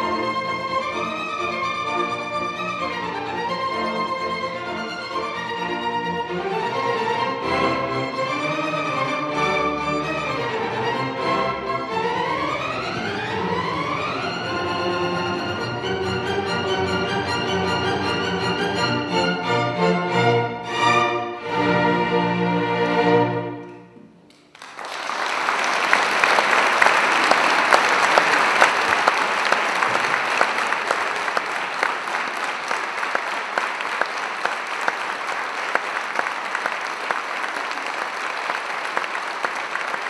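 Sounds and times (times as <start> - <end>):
string orchestra chords: 0.0 - 24.2
audience applauding: 24.3 - 40.0.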